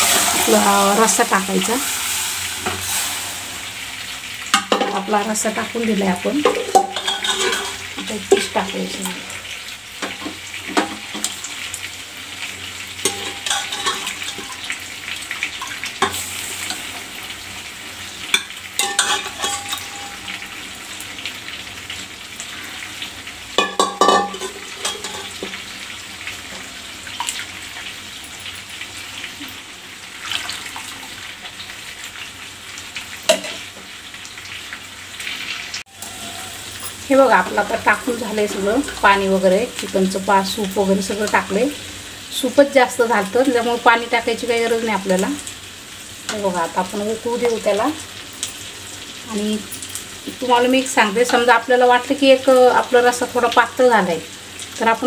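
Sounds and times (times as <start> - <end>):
curry sizzling in a pot: 0.0 - 55.0
ladle scraping and knocking a pot: 6.4 - 8.5, 23.6 - 25.4.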